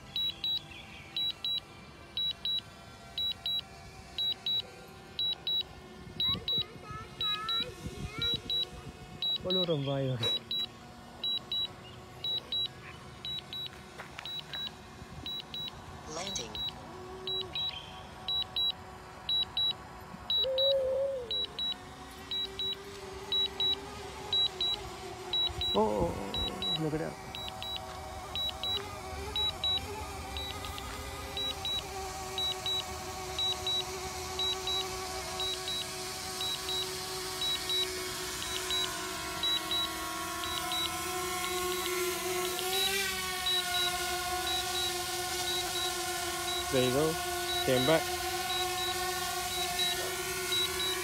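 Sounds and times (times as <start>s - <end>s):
remote controller double beeps: 0.1s - 0.6s, 1.2s - 1.6s, 2.2s - 2.6s, 3.2s - 3.6s, 4.2s - 4.6s, 5.2s - 13.7s, 14.3s - 20.7s, 21.3s - 27.8s, 28.4s - 28.8s, 29.4s - 41.0s, 43.5s - 51.0s
wavering tone: 20.3s - 41.0s.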